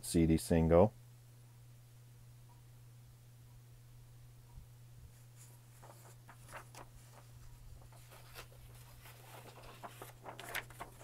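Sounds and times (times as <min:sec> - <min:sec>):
faint low hum: 0:00.0 - 0:11.0
paper rustling: 0:05.1 - 0:11.0.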